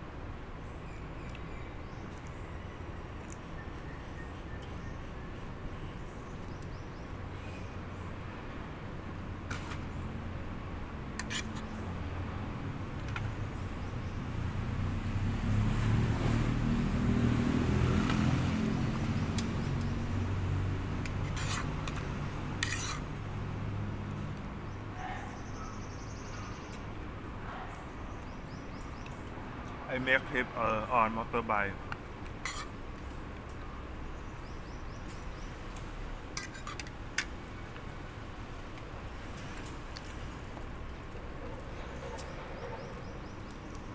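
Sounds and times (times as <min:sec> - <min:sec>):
vehicle engine rumble passing: 0:14.2 - 0:24.4.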